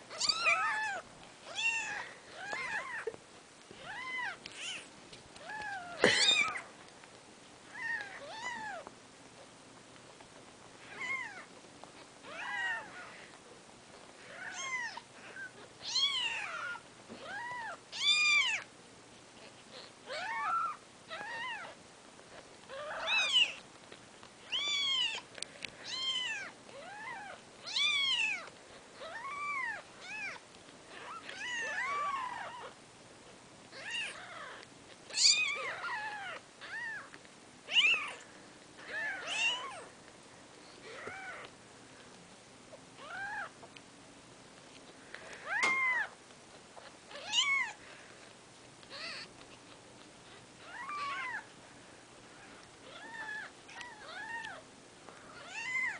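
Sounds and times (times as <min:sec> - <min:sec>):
kittens mewing: 0:00.1 - 0:06.7, 0:22.7 - 0:23.6, 0:38.8 - 0:39.9, 0:48.9 - 0:49.3.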